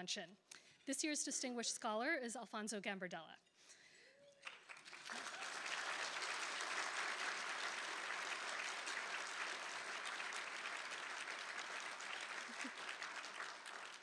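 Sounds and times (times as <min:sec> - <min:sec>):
audience applauding: 0:04.4 - 0:14.0.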